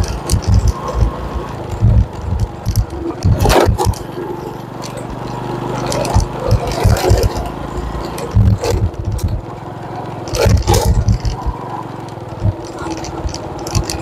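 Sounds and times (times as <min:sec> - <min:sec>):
thumps and knocks from bumps: 0:00.0 - 0:04.1, 0:05.9 - 0:09.5, 0:10.3 - 0:11.6, 0:12.4 - 0:14.0
rattles: 0:00.0 - 0:09.6, 0:10.2 - 0:14.0
motorcycle engine running: 0:00.0 - 0:14.0.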